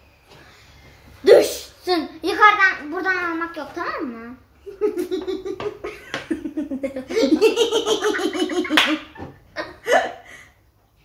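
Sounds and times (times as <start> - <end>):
girl laughing: 4.7 - 10.5
woman laughing: 4.8 - 10.4.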